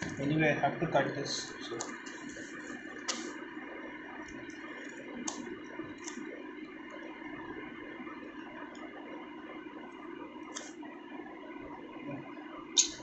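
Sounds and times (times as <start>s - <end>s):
scissors cutting tape: 3.0s - 3.3s.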